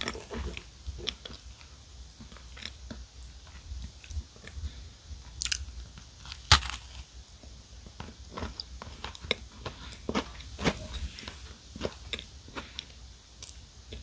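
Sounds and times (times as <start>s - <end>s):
food crunching: 5.4s - 7.1s, 8.0s - 14.0s
chocolate shell cracking: 6.2s - 7.0s.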